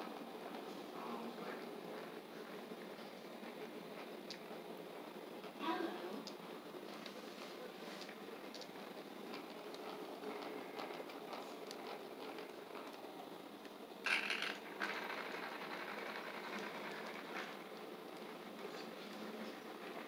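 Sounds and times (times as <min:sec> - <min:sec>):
toy truck motor whirring and rattling: 0:14.1 - 0:17.8.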